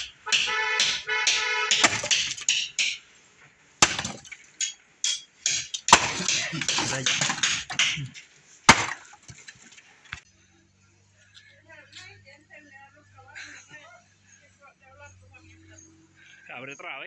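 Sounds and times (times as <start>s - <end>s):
axe chopping log: 0.0s - 3.0s, 3.8s - 9.7s.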